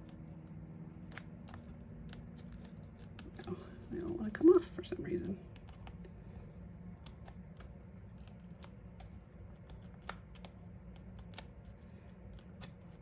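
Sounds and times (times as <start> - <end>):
fingernails peeling adhesive liners: 0.0 - 4.2, 6.9 - 13.0
low steady hum: 0.0 - 13.0.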